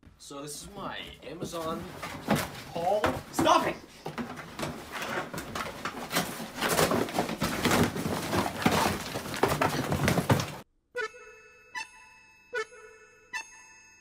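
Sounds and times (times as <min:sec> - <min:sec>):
cardboard crunching and ripping: 0:01.6 - 0:10.6.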